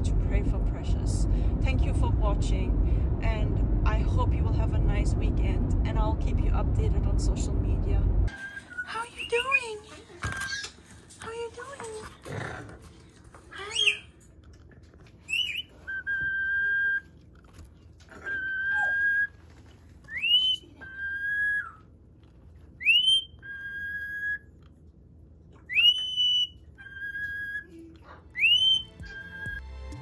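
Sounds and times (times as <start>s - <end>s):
two-part whistle: 28.4s - 29.6s.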